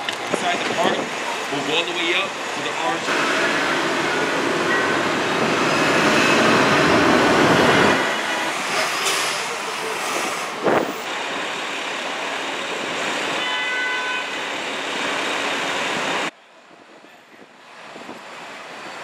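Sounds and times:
street traffic rush: 0.0s - 19.0s
vehicle horn: 13.4s - 14.4s.

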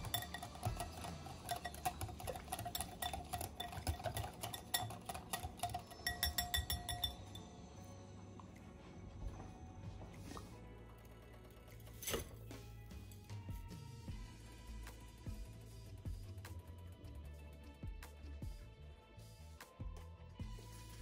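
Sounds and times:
wire whisk clicking against glass bowl: 0.0s - 7.4s.

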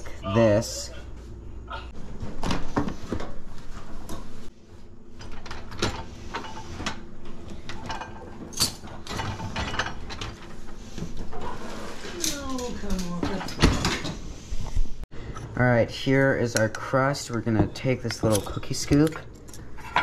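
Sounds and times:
dish racks rattling on rollers: 7.6s - 14.2s.

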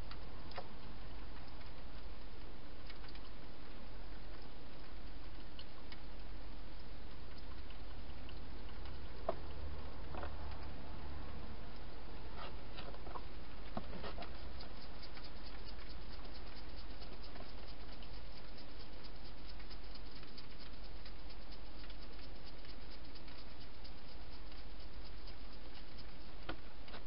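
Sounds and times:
hedgehog eating clicks and crackles: 0.0s - 27.0s
low hum: 0.0s - 27.0s.

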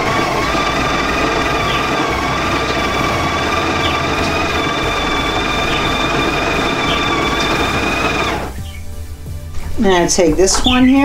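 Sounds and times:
coffee grinder motor whine: 0.0s - 8.6s.

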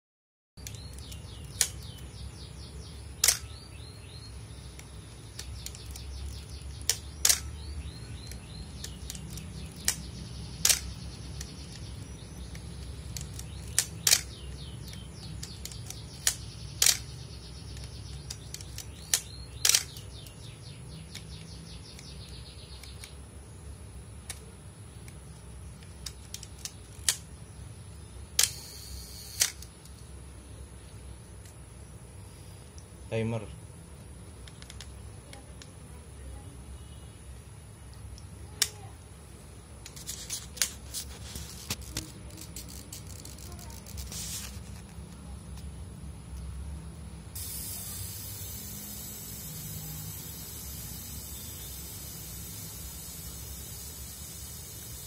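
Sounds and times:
camera shutter clacking: 3.2s - 3.5s, 10.6s - 11.0s, 13.1s - 14.4s, 28.4s - 29.7s
film advance lever ratcheting: 3.2s - 3.5s, 10.6s - 11.8s, 13.1s - 14.4s.

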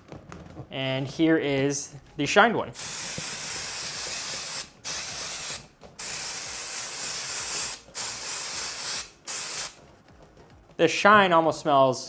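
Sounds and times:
aerosol spray hissing: 2.8s - 9.8s.

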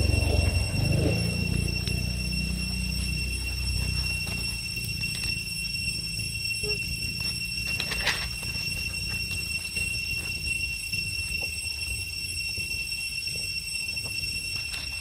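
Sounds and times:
low rumble: 0.0s - 6.2s
dry leaves rustling: 0.0s - 11.3s
steady high whine: 0.0s - 15.0s.

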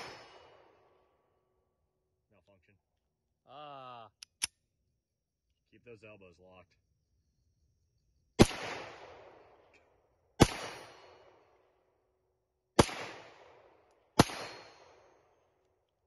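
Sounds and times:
pistol shots: 0.0s - 1.0s, 8.4s - 11.8s, 12.7s - 15.6s.

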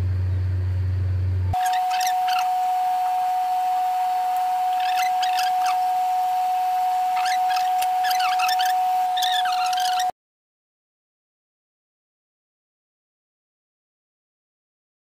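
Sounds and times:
high-pitched whine: 0.0s - 10.1s
small birds chirping: 1.6s - 10.1s.

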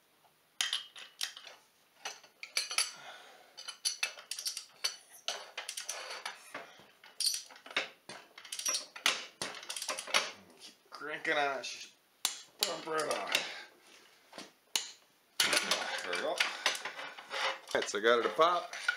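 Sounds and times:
metal tools clinking on steel: 0.6s - 3.0s, 3.6s - 10.4s, 12.6s - 13.5s, 15.4s - 18.9s.

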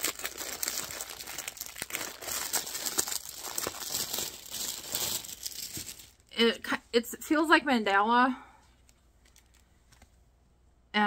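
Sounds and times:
plastic wrapper crinkling and tearing: 0.0s - 6.3s, 8.8s - 10.0s.

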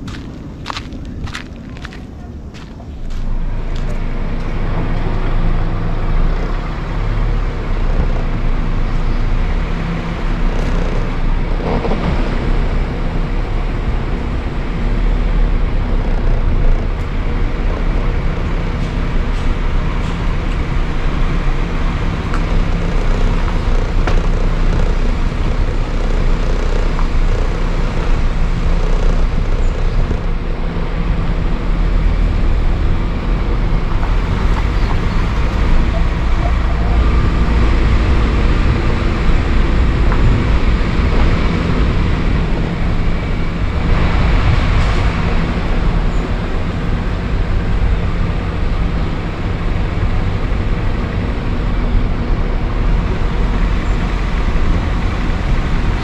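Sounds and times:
motor humming: 3.7s - 47.2s.

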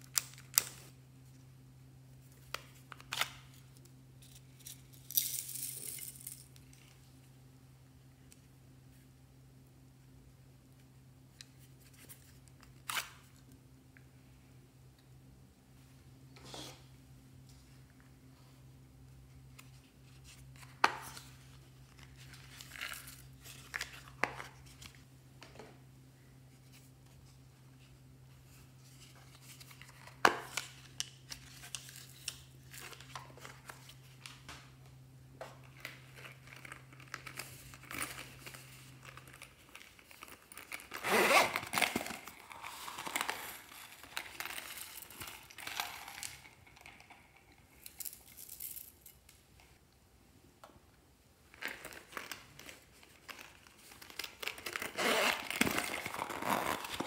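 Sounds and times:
plastic crinkling and rustling: 35.5s - 48.4s, 51.5s - 57.0s.

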